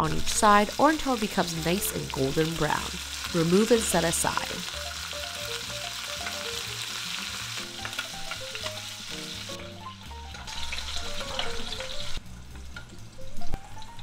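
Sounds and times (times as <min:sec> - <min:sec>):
meat sizzling and crackling: 0:00.0 - 0:14.0
soft background music: 0:00.0 - 0:14.0.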